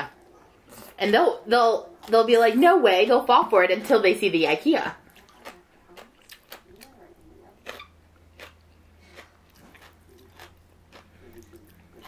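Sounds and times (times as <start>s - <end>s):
chewing and biting: 5.1s - 12.0s.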